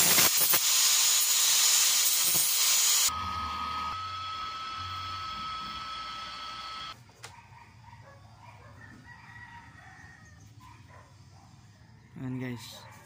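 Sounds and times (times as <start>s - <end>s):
gas torch hissing: 0.0s - 3.1s.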